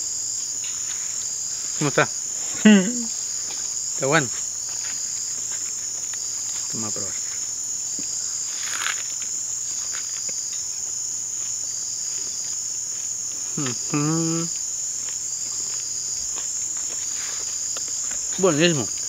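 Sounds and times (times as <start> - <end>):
insects trilling in chorus: 0.0 - 19.0
pulsing lower insect layer: 0.0 - 19.0
man humming mmm: 2.6 - 3.2, 13.6 - 14.6.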